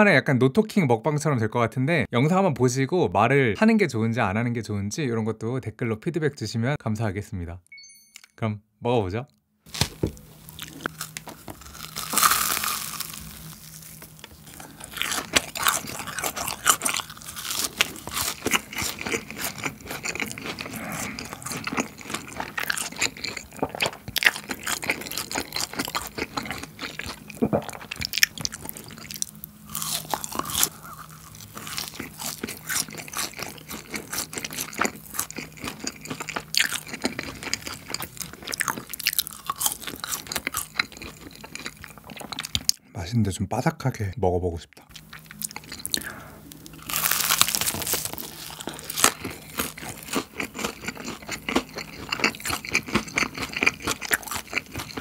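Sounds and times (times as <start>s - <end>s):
crunchy bite: 9.7s - 42.7s, 44.9s - 55.0s
wet chewing: 9.7s - 42.8s, 44.7s - 55.0s.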